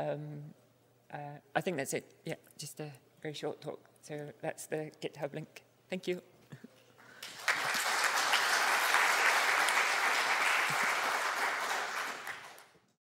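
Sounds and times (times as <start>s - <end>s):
audience applauding: 7.1s - 12.9s.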